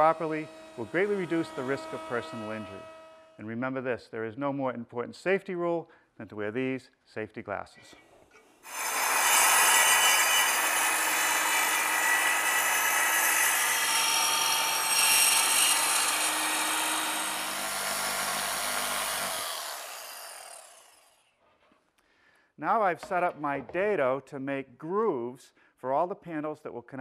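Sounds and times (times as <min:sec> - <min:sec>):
power saw cutting plywood: 0:00.0 - 0:03.4, 0:08.4 - 0:21.3.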